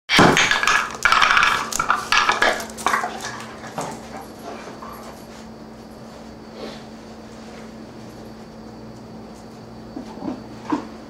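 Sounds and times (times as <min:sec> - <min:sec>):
dog playing rough with toy: 0:00.1 - 0:05.4.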